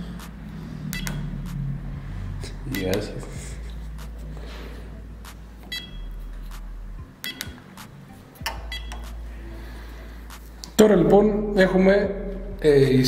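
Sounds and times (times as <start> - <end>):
short electronic beeps: 0.9 - 1.3, 2.7 - 3.1, 5.7 - 6.3, 7.2 - 7.6, 8.4 - 9.2.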